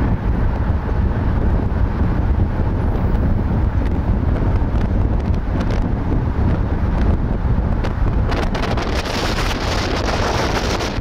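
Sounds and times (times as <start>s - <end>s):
car road noise rumble: 0.0s - 11.0s
wind rushing over microphone: 0.0s - 11.0s.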